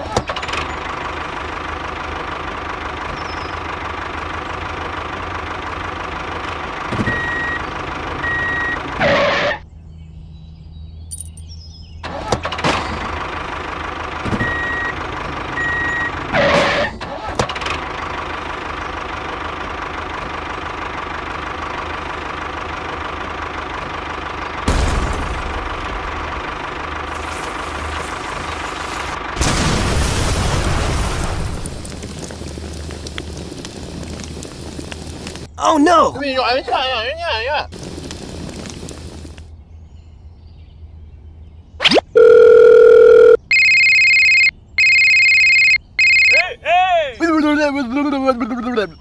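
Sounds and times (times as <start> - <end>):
tractor engine running: 0.0 - 9.6, 11.1 - 35.6, 37.7 - 39.5, 43.0 - 46.5
short high beeps: 41.8 - 46.4.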